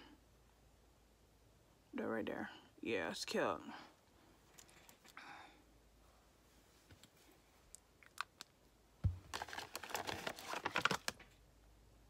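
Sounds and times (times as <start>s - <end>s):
soft thump: 9.0s - 9.2s
packaging crinkling: 9.2s - 11.4s.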